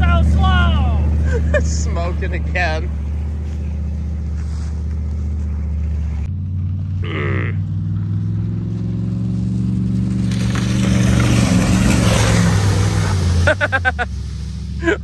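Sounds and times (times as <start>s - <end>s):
tyre and ground noise: 0.0s - 15.0s
car engine revving hard: 7.6s - 14.8s.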